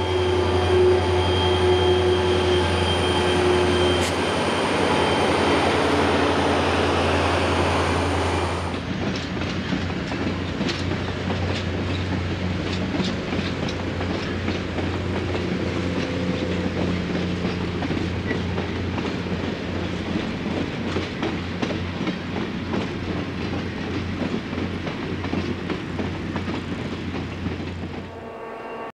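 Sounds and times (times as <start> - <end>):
train wheels rushing on rail: 0.0 - 28.2
wheels clicking over rail joints: 8.7 - 28.1.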